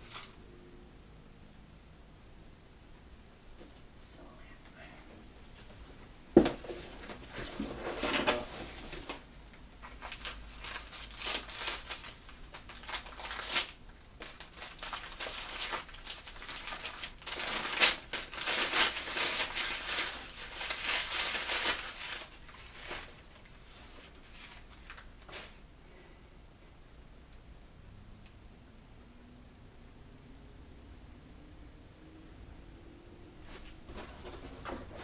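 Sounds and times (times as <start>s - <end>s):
wrapping crinkling: 9.8s - 25.6s.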